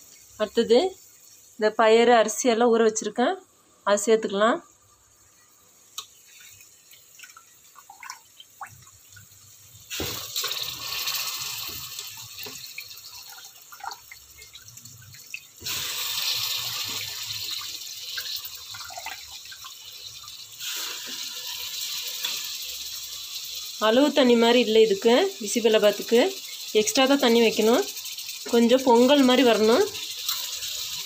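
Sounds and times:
water dripping: 4.9s - 20.7s
water pouring into pot: 6.2s - 31.0s.

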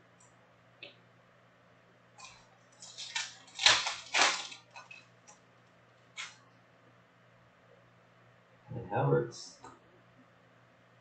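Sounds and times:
foil wrapper tearing and crinkling: 2.2s - 5.0s.

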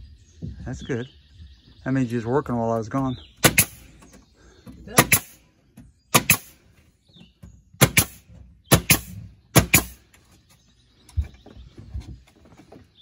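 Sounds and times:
nail gun firing: 3.4s - 3.9s, 5.0s - 5.4s, 6.1s - 6.6s, 7.8s - 10.0s.

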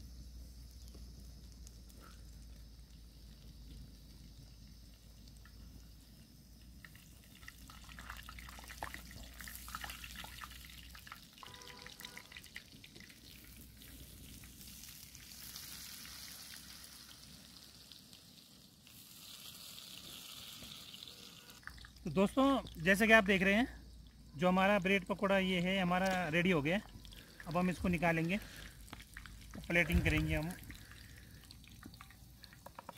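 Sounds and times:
food sizzling in oil: 0.0s - 32.9s
oil crackling and popping: 0.0s - 32.9s.

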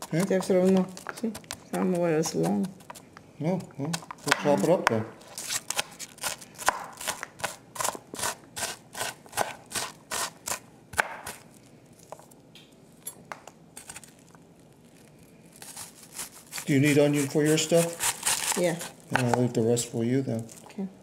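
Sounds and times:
knife chopping on cutting board: 5.7s - 11.4s.

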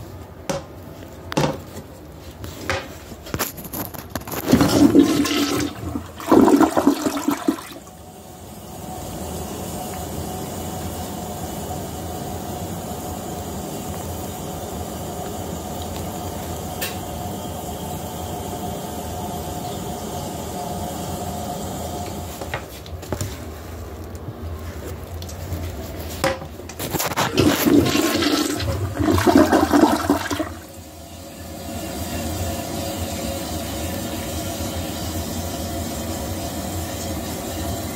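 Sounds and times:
toilet refilling: 4.2s - 8.1s, 26.7s - 37.9s
toilet flushing: 4.2s - 12.4s, 16.8s - 22.7s, 26.7s - 37.9s.

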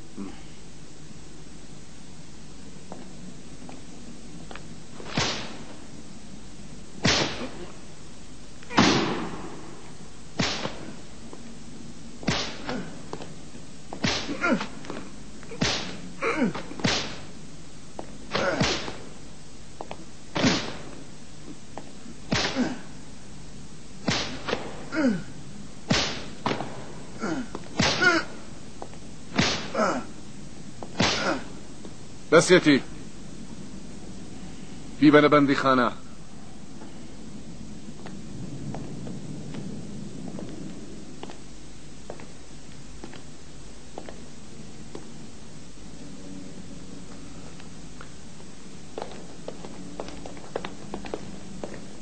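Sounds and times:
whip lashes cracking: 5.0s - 5.8s, 7.0s - 7.7s, 8.7s - 9.6s, 10.4s - 11.0s, 12.2s - 13.3s, 13.9s - 17.3s, 18.3s - 19.1s, 20.3s - 21.0s, 22.3s - 22.8s, 24.0s - 24.9s, 25.9s - 26.9s, 27.7s - 28.3s, 29.3s - 29.9s, 30.9s - 31.5s
man crying out in pain: 14.3s - 15.6s, 16.2s - 16.8s, 18.3s - 18.9s, 22.5s - 23.0s, 24.9s - 25.4s, 27.1s - 28.5s, 29.7s - 30.2s, 31.1s - 31.6s.

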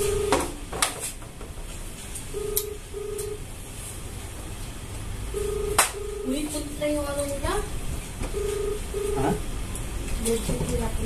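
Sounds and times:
electronic ringing beeps: 0.0s - 0.5s, 2.3s - 3.4s, 5.3s - 6.6s, 8.3s - 9.4s.

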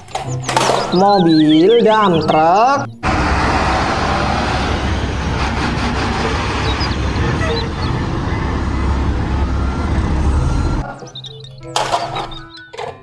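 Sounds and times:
road noise: 0.0s - 11.4s
diesel truck engine drone: 2.1s - 11.2s.

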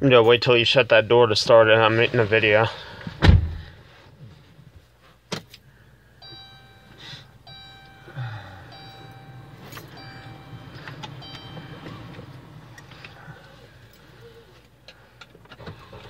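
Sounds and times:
car engine starting and idling: 6.1s - 16.0s
dashboard warning chime: 6.2s - 14.0s.

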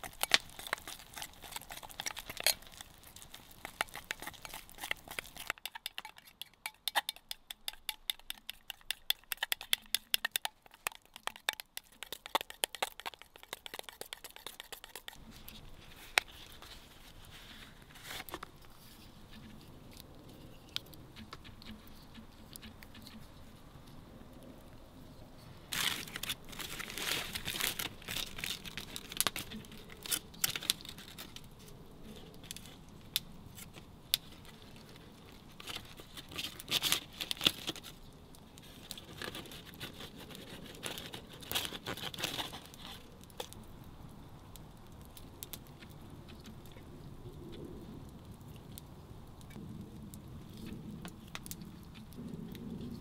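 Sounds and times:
aluminium foil crinkling: 0.0s - 23.3s, 25.7s - 43.7s.

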